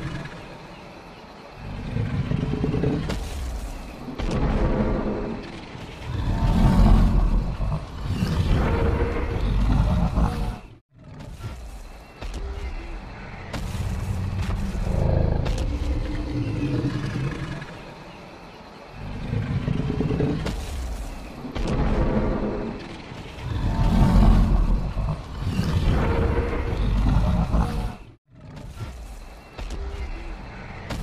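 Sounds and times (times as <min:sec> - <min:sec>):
dinosaur roars: 0:04.4 - 0:11.1, 0:21.7 - 0:28.5.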